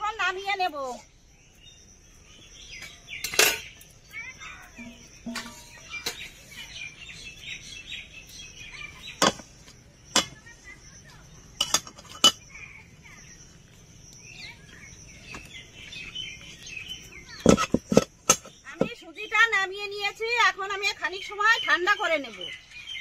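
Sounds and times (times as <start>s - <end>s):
birds chirping: 0.0s - 23.0s
metal utensils clinking on a pot: 2.8s - 3.9s, 4.8s - 6.5s, 9.2s - 9.4s, 10.1s - 10.4s, 11.6s - 12.5s, 17.4s - 18.9s.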